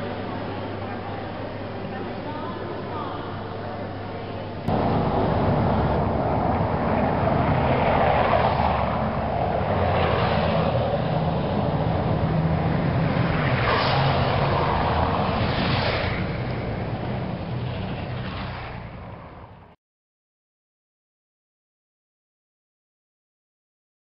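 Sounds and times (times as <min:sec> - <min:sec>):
steady traffic rumble: 0:04.6 - 0:19.8
vehicles driving past on cobblestones: 0:04.7 - 0:19.8.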